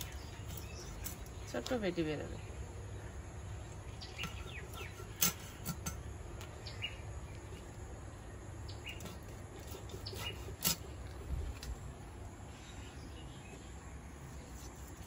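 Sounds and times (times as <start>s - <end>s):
bird chirps: 2.2s - 5.6s, 6.5s - 10.6s.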